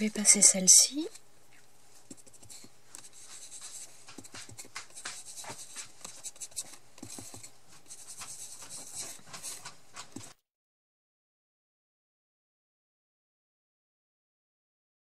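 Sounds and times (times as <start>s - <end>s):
foam dauber scratching on paper: 2.0s - 10.4s.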